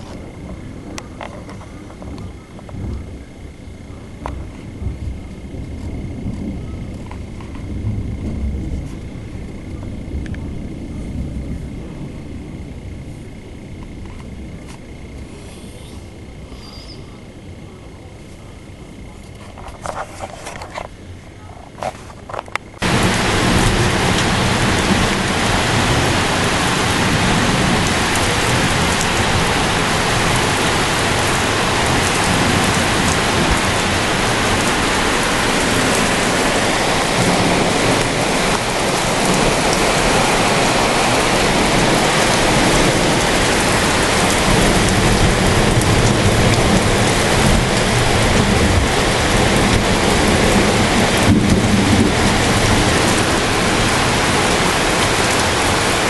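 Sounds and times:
thunder rumbling: 0.0 - 15.4, 22.6 - 56.0
heavy rain pouring: 0.0 - 56.0.

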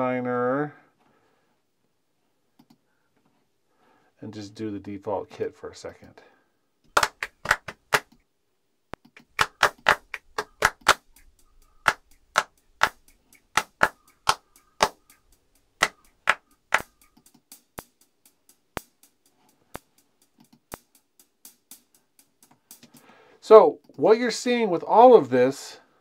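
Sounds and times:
hand claps: 6.9 - 8.1, 9.0 - 15.2, 15.8 - 17.9
closed hi-hat hits: 7.0 - 8.0, 9.1 - 24.5.

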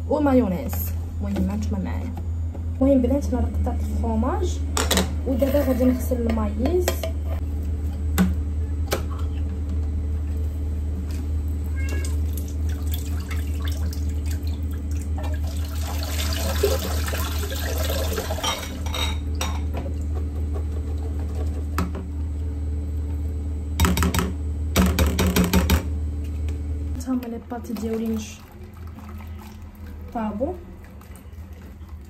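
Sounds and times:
steady low hum: 0.0 - 32.0
tap water running into colander: 12.0 - 18.9, 27.7 - 32.0.

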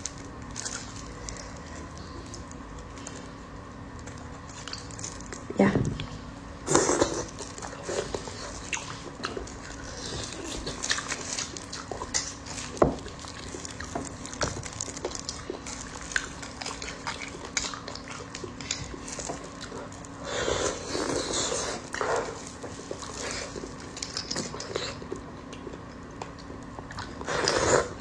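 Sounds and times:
wet slurping and sucking: 20.2 - 22.4, 27.2 - 28.0.

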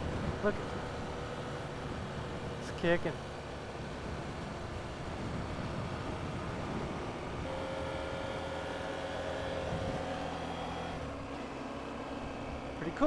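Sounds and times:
motorcycle engine running: 0.0 - 13.0
wind and road noise: 0.0 - 13.0.

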